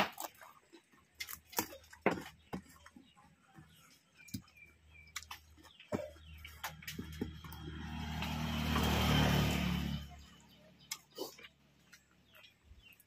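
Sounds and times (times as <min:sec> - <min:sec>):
mouth clicks and smacks chewing: 0:04.3 - 0:07.0, 0:10.9 - 0:13.0.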